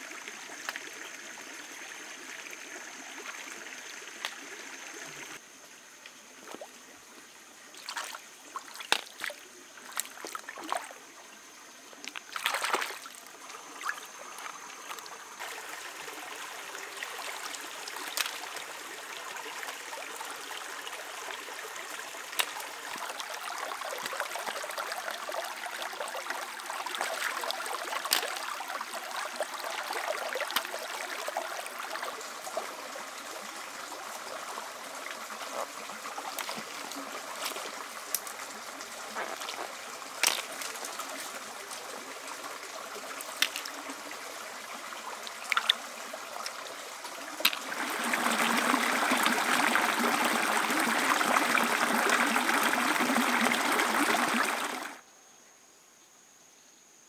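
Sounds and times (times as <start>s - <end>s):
stream trickling over rocks: 0.0s - 55.0s
hands splashing in water: 7.8s - 10.9s, 12.0s - 13.2s, 36.3s - 38.4s, 39.1s - 41.4s, 43.2s - 43.8s, 45.5s - 45.8s, 47.4s - 54.8s.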